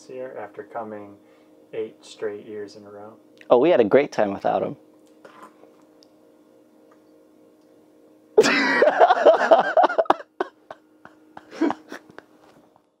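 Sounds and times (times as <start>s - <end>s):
faint steady hum: 0.0s - 13.0s
burst of laughter: 8.4s - 10.8s, 11.4s - 12.2s.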